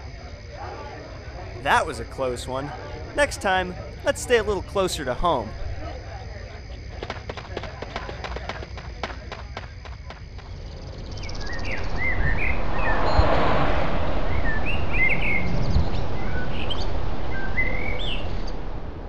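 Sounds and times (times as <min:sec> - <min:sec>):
steady background hiss: 0:01.3 - 0:05.9
birds chirping: 0:14.4 - 0:18.7.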